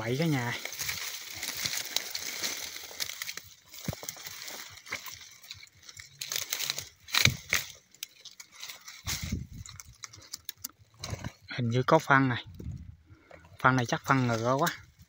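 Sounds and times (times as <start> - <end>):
twigs snapping: 0.0 - 11.4
dry sticks and leaves rustling: 0.0 - 15.0.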